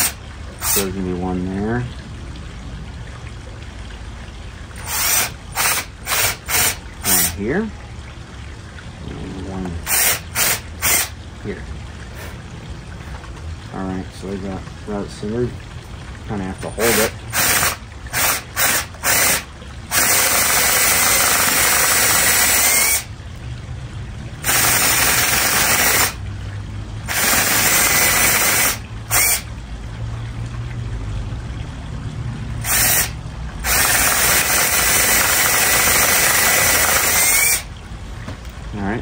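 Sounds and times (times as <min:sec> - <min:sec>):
cordless drill boring into log: 0:00.0 - 0:00.8, 0:04.8 - 0:07.4, 0:09.9 - 0:11.2, 0:16.9 - 0:23.1, 0:24.4 - 0:26.2, 0:27.1 - 0:29.5, 0:32.6 - 0:37.7.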